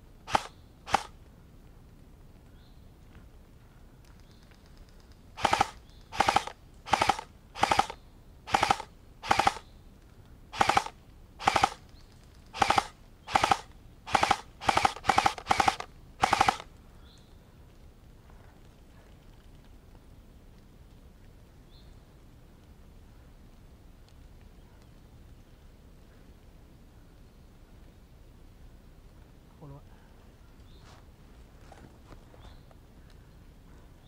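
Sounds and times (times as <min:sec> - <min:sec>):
airsoft gun firing bursts: 0:00.3 - 0:01.1, 0:05.4 - 0:09.7, 0:10.5 - 0:11.8, 0:12.5 - 0:16.7.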